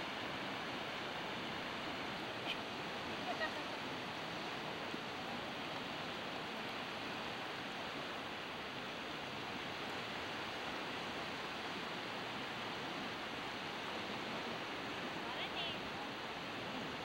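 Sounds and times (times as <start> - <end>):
distant surf on stony shore: 0.0 - 17.0.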